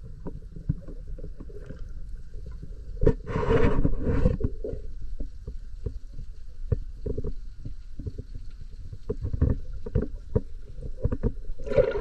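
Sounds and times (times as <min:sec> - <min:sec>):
rush of water: 0:11.6 - 0:12.0.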